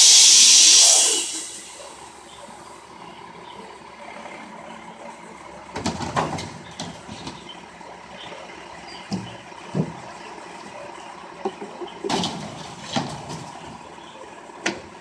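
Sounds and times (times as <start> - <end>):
diesel truck engine idling: 0.0 - 15.0
recyclables clattering: 5.7 - 7.8, 9.0 - 14.0.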